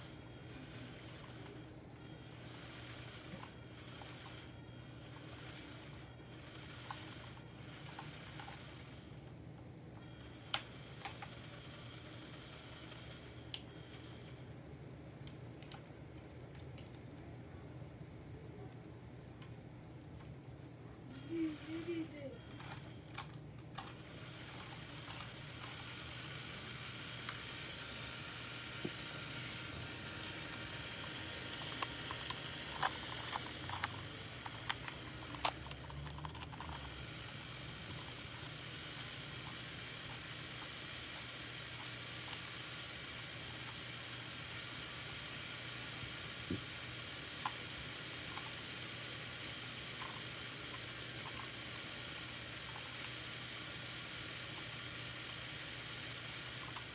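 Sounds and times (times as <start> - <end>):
small electric motor whirring: 0.0 - 9.3, 10.0 - 14.5, 21.1 - 56.9
sharp clicks and rattles: 28.8 - 42.8.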